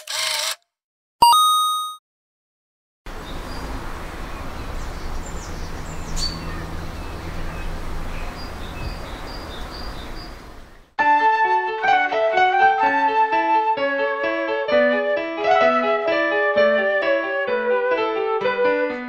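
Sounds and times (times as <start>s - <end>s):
bird chirps: 3.2s - 10.9s
piano music: 11.0s - 19.0s.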